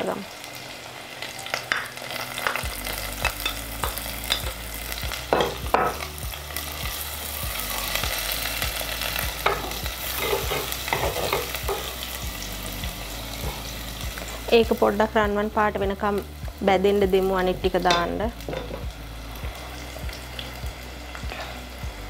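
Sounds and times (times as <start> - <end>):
oil crackling: 0.0 - 15.2
food sizzling in oil: 0.0 - 22.0.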